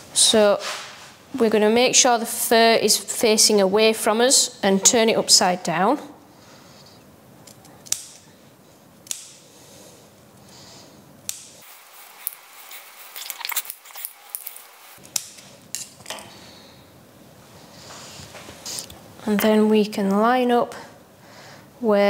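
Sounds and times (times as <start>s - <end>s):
scissors snipping: 7.4s - 8.3s, 11.2s - 11.6s.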